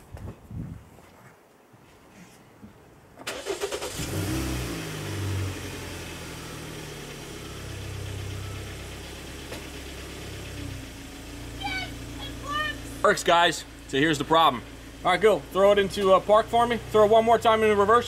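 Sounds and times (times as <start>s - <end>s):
car starter cranking: 3.2s - 5.1s
car engine revving and idling: 3.5s - 18.0s.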